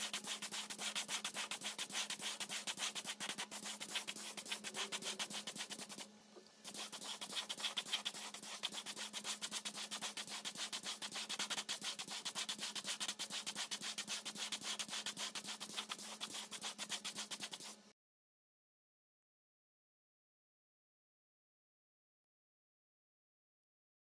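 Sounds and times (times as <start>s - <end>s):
hand sanding metal: 0.0s - 6.1s, 6.7s - 17.8s
faint steady hum: 0.0s - 17.9s.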